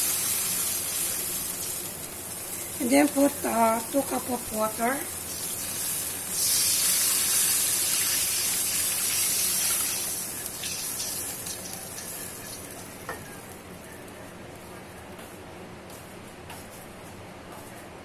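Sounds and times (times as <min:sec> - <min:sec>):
water sizzling in hot wok: 0:00.0 - 0:13.0.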